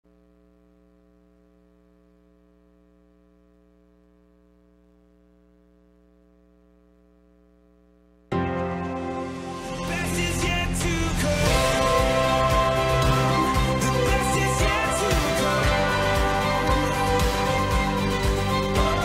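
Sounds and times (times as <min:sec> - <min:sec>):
faint electrical hum: 0:00.1 - 0:08.3
theme music: 0:08.3 - 0:19.0.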